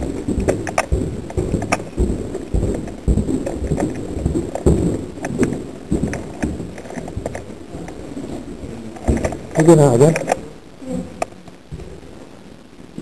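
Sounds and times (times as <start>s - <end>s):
sharp clicks: 0.0s - 0.9s
dull thumps: 0.0s - 9.6s.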